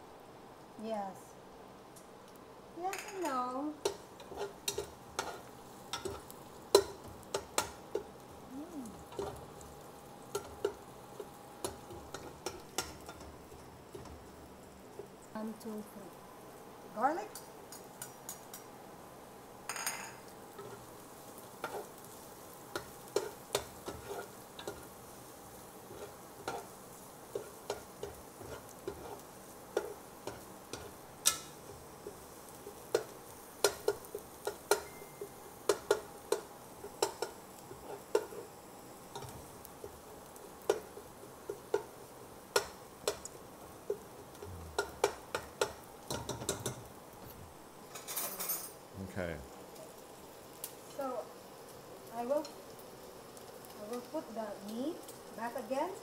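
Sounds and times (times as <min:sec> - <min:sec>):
faint oil sizzle: 0:00.0 - 0:56.0
spatula scraping a pot: 0:03.8 - 0:06.2, 0:23.2 - 0:24.8, 0:27.3 - 0:32.2.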